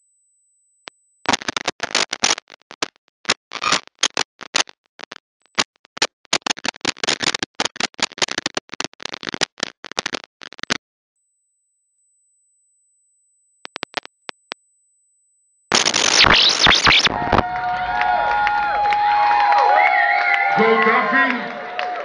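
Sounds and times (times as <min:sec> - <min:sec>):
distorted club music: 0:15.7 - 0:17.7.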